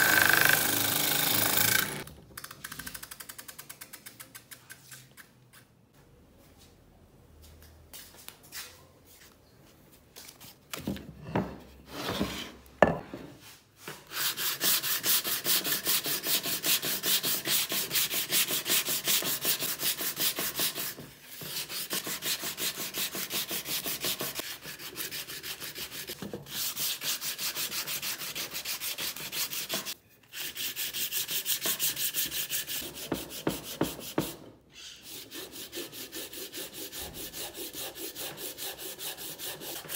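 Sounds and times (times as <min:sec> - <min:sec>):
hand sanding wood: 0:14.0 - 0:34.4, 0:35.0 - 0:39.9.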